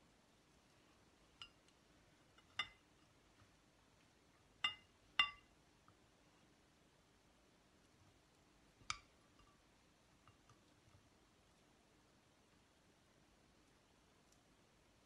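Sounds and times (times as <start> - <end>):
metal spoon clinking on glass bowl: 2.4 - 2.8, 4.6 - 5.5.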